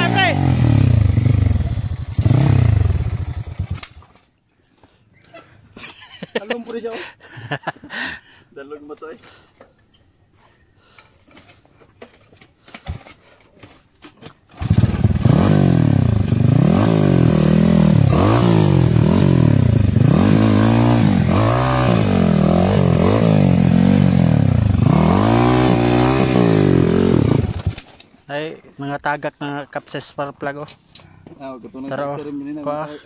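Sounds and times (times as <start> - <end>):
dirt bike engine revving: 0.0 - 4.0, 14.6 - 27.9.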